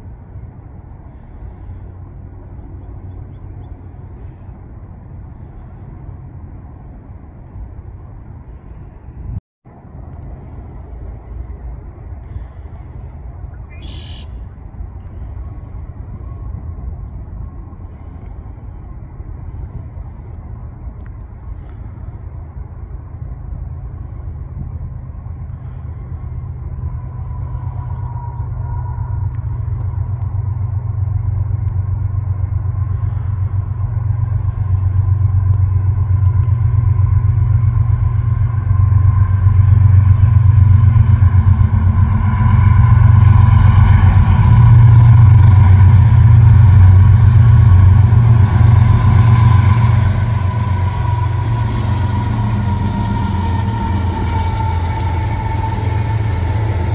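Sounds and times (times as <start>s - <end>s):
locomotive engines rumbling: 0.0s - 56.9s
thin whine: 25.4s - 56.9s.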